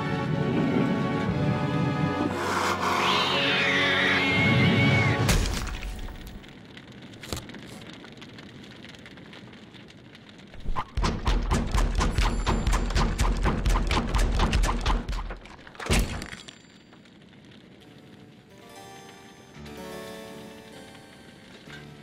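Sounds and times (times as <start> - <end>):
dramatic orchestral music: 0.0 - 5.3
crash: 5.2 - 6.5, 10.6 - 16.7
rapid foley thuds and hits: 10.6 - 16.2.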